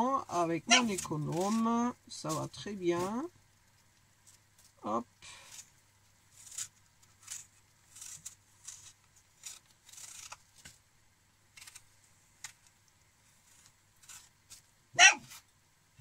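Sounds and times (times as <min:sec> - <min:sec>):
peeler scraping apple skin: 0:00.2 - 0:03.3, 0:05.3 - 0:10.8, 0:11.5 - 0:12.7, 0:13.4 - 0:15.5.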